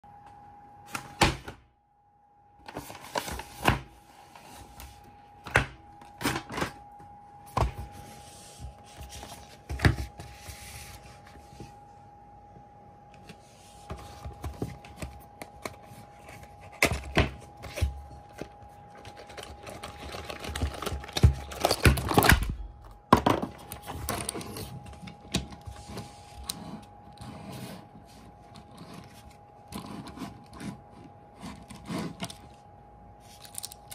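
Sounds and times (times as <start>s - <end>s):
faint steady tone: 1.7s - 20.5s
packaging rustling: 13.9s - 22.5s.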